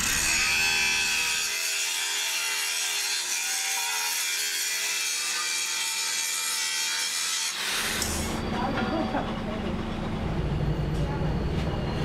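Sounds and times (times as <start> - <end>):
angle grinder grinding metal: 0.0 - 8.8.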